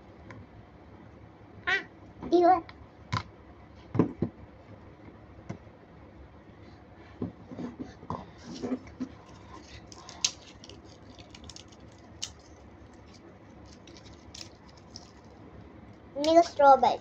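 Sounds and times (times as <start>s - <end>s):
plastic spoon stirring liquid: 7.6s - 15.5s.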